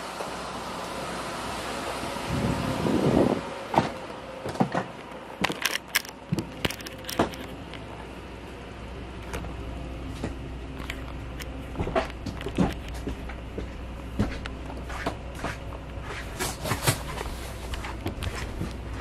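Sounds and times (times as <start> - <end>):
steady low hum: 0.0 - 19.0
handling clicks and thumps: 4.8 - 7.8, 10.2 - 13.4
footsteps on entry steps: 9.3 - 19.0.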